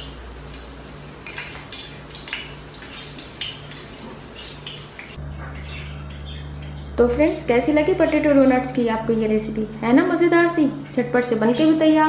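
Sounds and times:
deep-frying in hot oil: 0.0 - 5.2.

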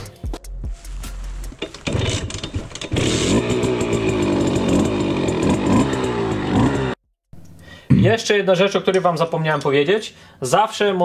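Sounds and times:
two-stroke moped engine running: 1.5 - 7.0.

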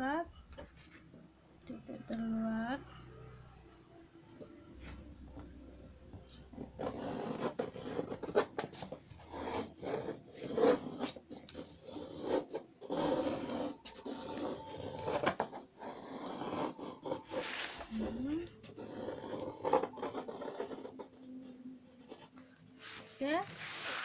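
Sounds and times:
compass scratching on paper: 6.1 - 24.0.

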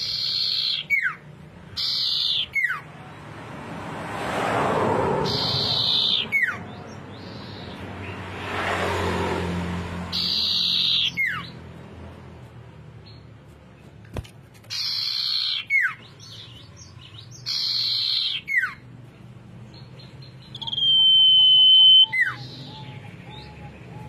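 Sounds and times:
bird whistling song: 0.0 - 2.8, 5.2 - 7.8, 10.1 - 11.6, 14.7 - 18.8, 19.7 - 24.0.

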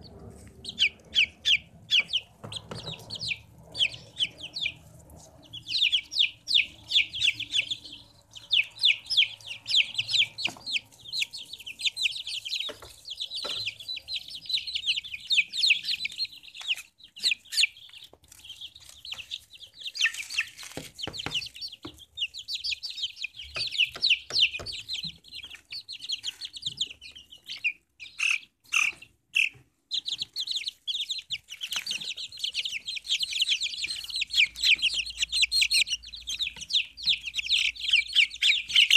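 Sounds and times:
chicks peeping: 0.0 - 38.9.

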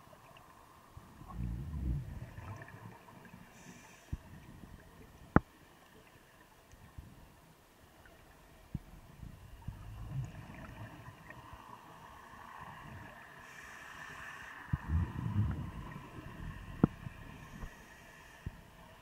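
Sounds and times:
low steady hiss: 0.0 - 19.0
underwater regulator bubbles: 1.2 - 3.0, 14.7 - 17.7.

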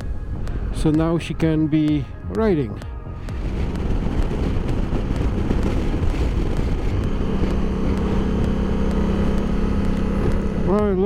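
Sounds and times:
motorcycle engine running: 0.0 - 11.0
wind rushing over microphone: 0.0 - 11.0.

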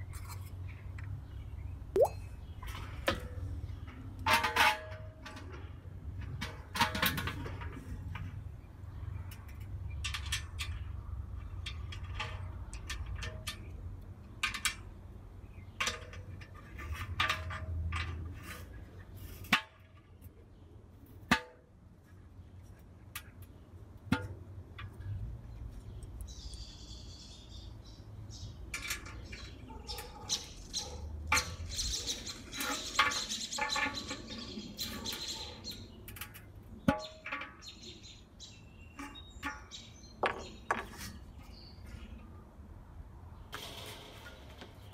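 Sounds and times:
birds chirping: 25.4 - 36.0.

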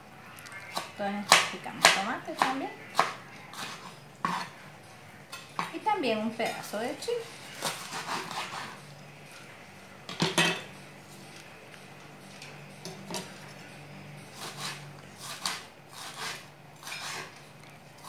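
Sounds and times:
knife chopping on plastic board: 0.8 - 4.5.

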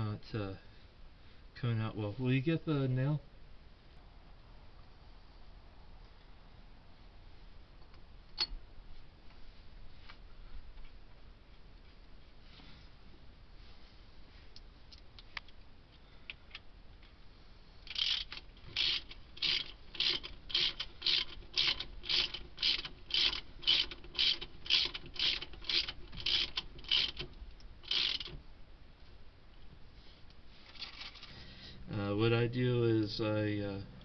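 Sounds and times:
ratchet wrench clicking: 17.9 - 28.4.

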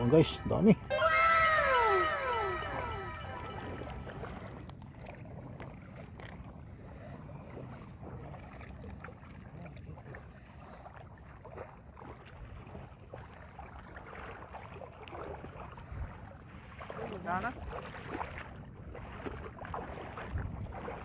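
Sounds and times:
water splashing and sloshing: 0.0 - 21.0
wind rumble on microphone: 15.0 - 21.0.

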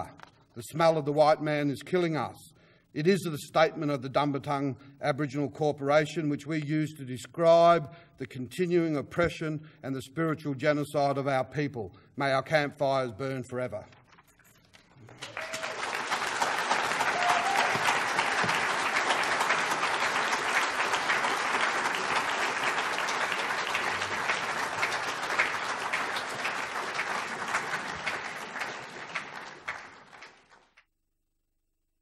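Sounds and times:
audience applauding: 14.9 - 30.8.

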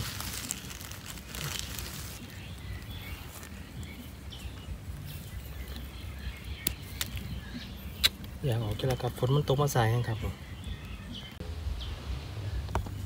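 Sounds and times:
faint bird chirps: 0.4 - 13.0
steady low rumble: 10.4 - 13.0.

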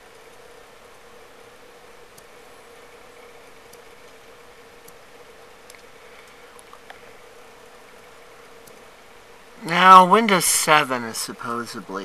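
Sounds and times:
steady hum with hiss: 0.0 - 12.0
faint sharp clicks: 0.1 - 0.4, 2.1 - 2.3, 3.7 - 5.0, 5.6 - 7.1, 7.9 - 8.9.

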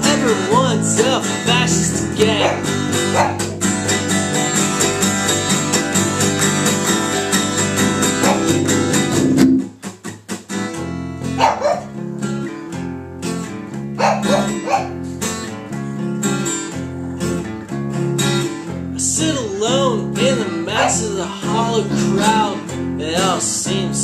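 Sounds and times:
acoustic guitar strumming: 0.0 - 24.0
dog barking: 2.2 - 3.6, 8.2 - 8.6, 11.4 - 11.9, 14.0 - 15.0, 20.7 - 21.2.

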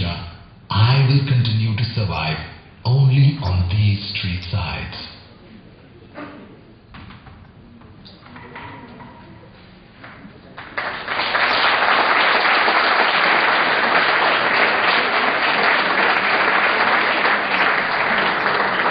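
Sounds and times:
audience applauding: 10.5 - 18.9.

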